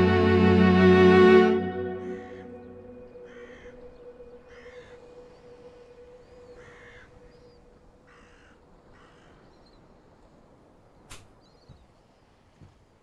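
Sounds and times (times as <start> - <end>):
low music note: 0.0 - 3.5
crow cawing: 2.0 - 5.1, 6.6 - 7.3, 8.0 - 9.5.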